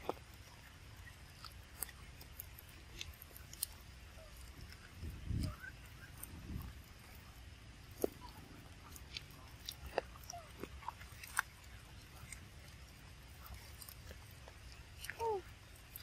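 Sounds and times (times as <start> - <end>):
faint clicks and ticks: 0.0 - 16.0.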